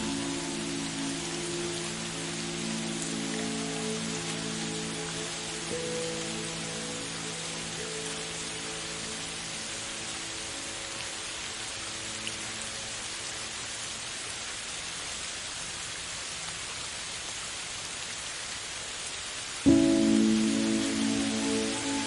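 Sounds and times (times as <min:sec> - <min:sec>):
steady hiss: 0:00.0 - 0:22.0
sustained music notes: 0:19.7 - 0:22.0.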